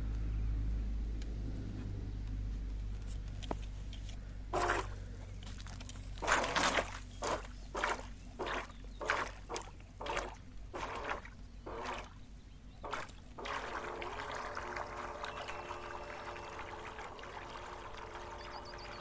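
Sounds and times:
oars splashing water: 4.4s - 19.0s.

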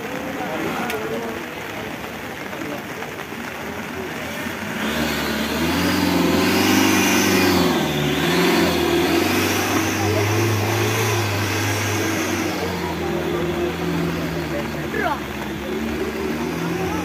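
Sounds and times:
off-road engine revving: 3.5s - 17.0s.

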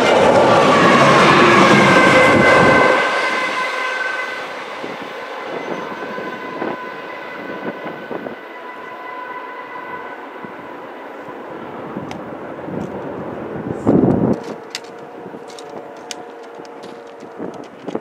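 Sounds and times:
diesel locomotive rumble: 0.0s - 18.0s
steel wheels on rails: 0.0s - 18.0s
wheel and rail clicks: 14.1s - 18.0s.

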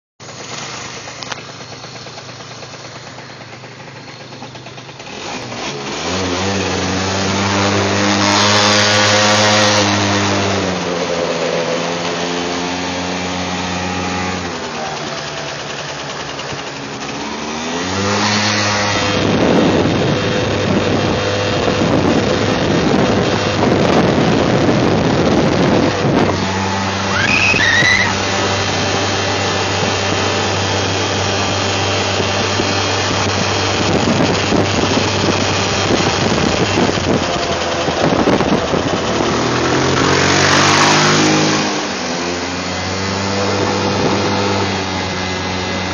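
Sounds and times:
scooter engine revving: 0.2s - 45.9s
wind on microphone: 18.9s - 30.6s, 32.0s - 41.8s, 42.8s - 45.9s.

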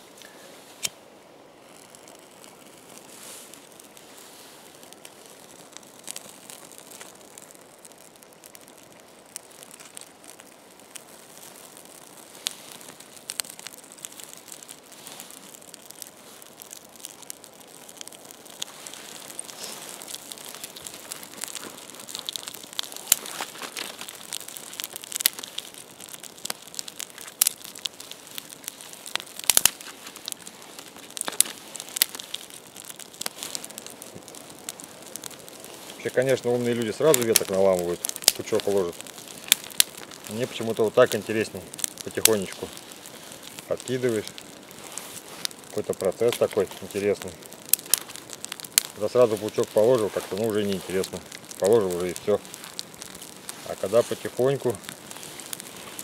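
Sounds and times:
campfire crackling and popping: 0.0s - 56.0s.

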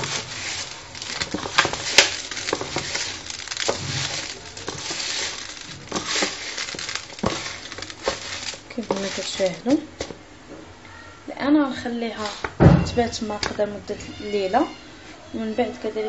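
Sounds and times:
wet squishing of kneaded meat: 0.0s - 10.2s.

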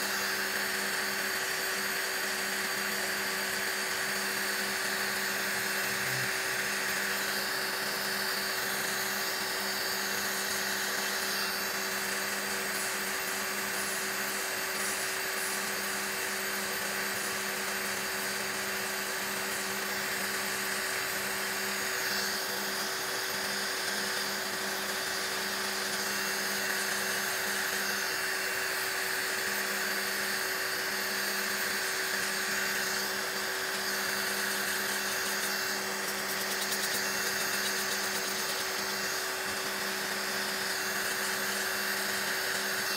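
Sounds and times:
electric nail drill whine: 0.0s - 42.9s
bit filing fingernail hiss: 8.1s - 16.1s, 32.1s - 42.9s.

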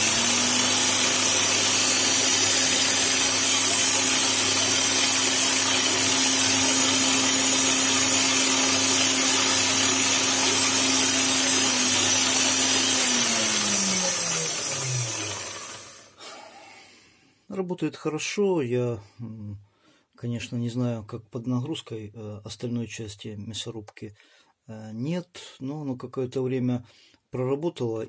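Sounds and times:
electric motor humming and winding down: 0.0s - 16.2s.

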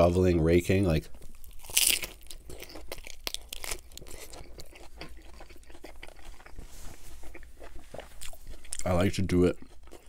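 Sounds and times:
chewing with lettuce crunches: 1.1s - 10.0s
crunchy bite into burger: 1.3s - 6.6s.

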